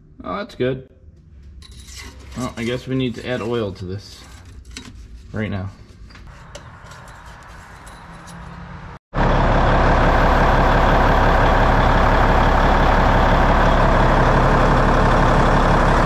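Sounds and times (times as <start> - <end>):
diesel engine idling: 9.1 - 16.0.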